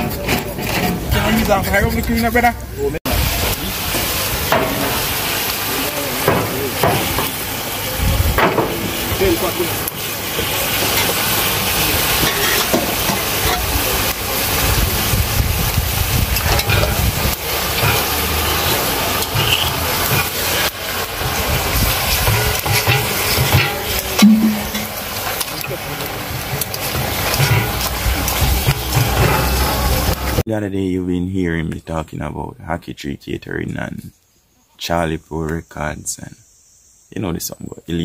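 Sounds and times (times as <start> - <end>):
meat sizzling in a pot: 3.1 - 30.4.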